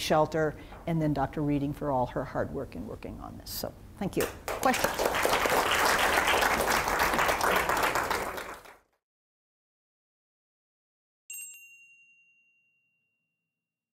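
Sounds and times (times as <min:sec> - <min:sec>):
audience applauding: 0:04.4 - 0:08.9
bright chime: 0:11.3 - 0:13.3.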